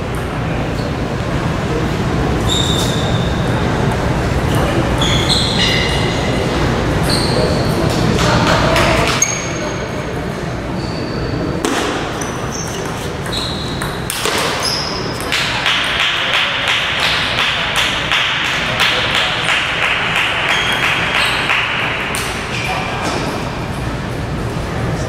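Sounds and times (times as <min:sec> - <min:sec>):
short high squeaks: 0:02.4 - 0:03.6, 0:05.0 - 0:06.4, 0:07.0 - 0:07.8, 0:10.7 - 0:11.5, 0:12.1 - 0:15.2.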